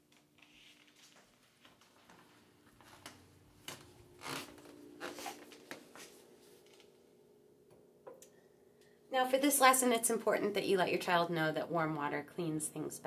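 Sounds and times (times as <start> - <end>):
faint footsteps: 1.0 - 7.0.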